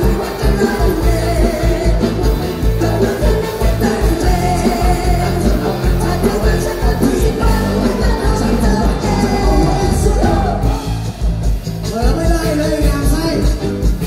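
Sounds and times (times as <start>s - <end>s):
man singing into a microphone: 0.0s - 11.1s
drum and bass beat: 0.0s - 14.0s.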